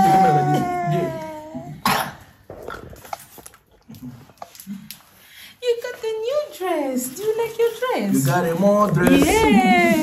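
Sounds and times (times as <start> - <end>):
child whimpering: 0.0 - 1.8.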